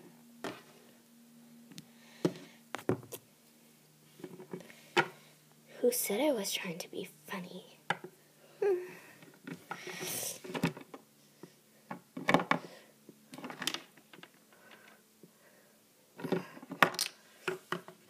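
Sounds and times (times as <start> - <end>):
plastic toys knocking and clicking: 11.9 - 12.7, 13.3 - 14.3, 16.2 - 18.0.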